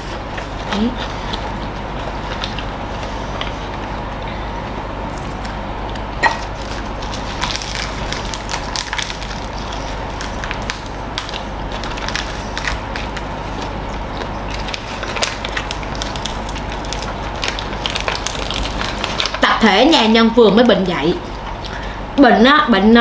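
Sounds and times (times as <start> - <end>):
people crunching and chewing: 5.1 - 19.4.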